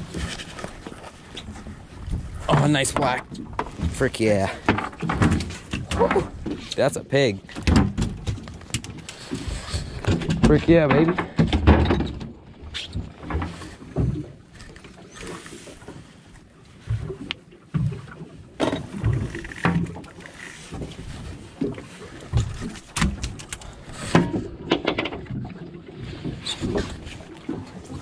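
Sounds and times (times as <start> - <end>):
fish flopping on boat deck: 7.4 - 28.0
fishing gear handled: 18.8 - 24.5.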